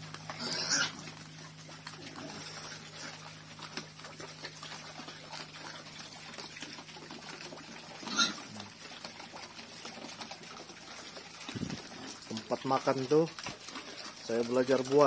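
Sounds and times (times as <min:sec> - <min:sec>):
pigs slurping and chewing: 0:00.0 - 0:15.0
pig squealing: 0:00.3 - 0:01.1, 0:08.0 - 0:08.6.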